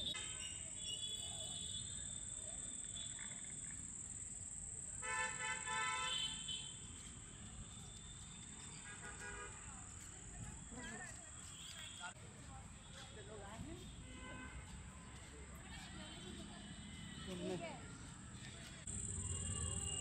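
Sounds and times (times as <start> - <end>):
vehicle horn: 5.0 - 7.0, 8.8 - 9.7.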